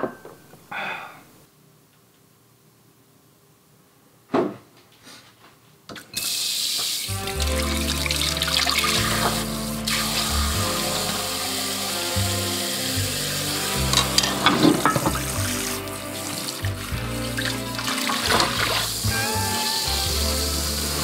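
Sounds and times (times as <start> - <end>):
water running into metal sink: 6.2 - 12.0, 13.4 - 19.2
background music with bass: 7.1 - 21.0.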